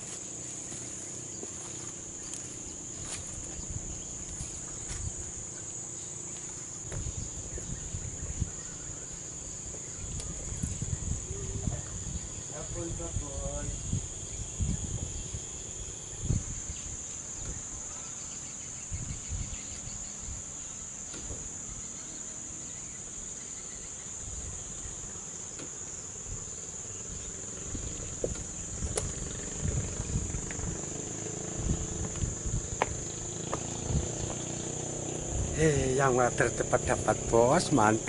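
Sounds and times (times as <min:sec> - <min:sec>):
insects droning: 0:00.0 - 0:38.0
low thumps and rumbles: 0:06.8 - 0:08.6, 0:27.6 - 0:34.5.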